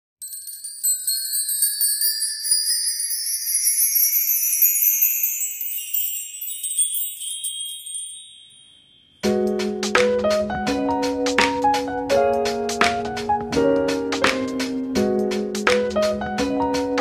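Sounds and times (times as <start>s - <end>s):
shimmering chime-like bells rising: 0.2s - 9.3s.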